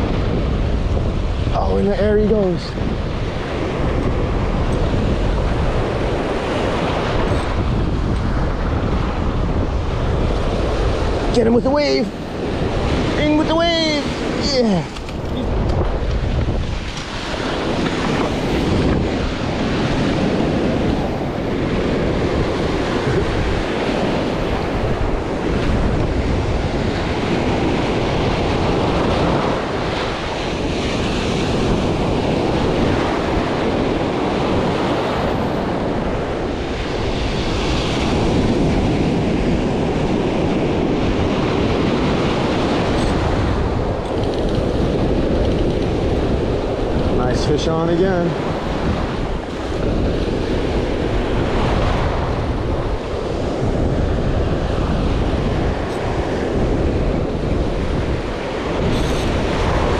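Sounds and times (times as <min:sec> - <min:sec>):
surf breaking on a beach: 0:00.0 - 0:59.9
wind buffeting microphone: 0:00.0 - 0:59.9.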